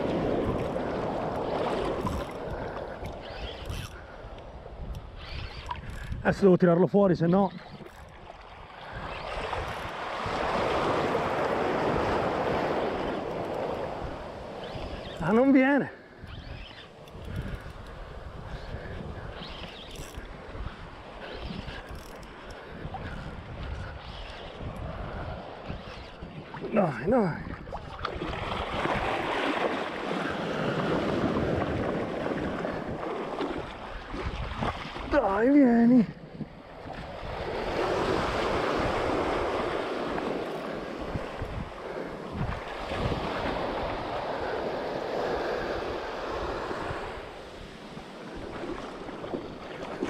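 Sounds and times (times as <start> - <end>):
surf washing in: 0.0 - 3.3, 8.7 - 16.2, 23.0 - 50.0.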